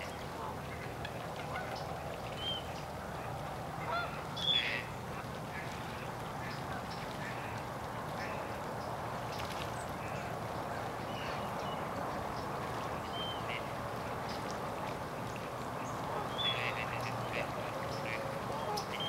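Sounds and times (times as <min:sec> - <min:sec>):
waterfowl flock calling: 0:00.4 - 0:08.6, 0:12.8 - 0:19.0.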